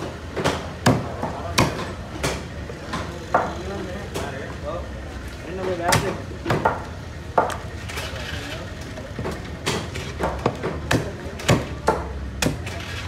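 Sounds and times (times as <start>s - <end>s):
knife chopping on wooden block: 0.4s - 2.4s, 9.7s - 12.8s.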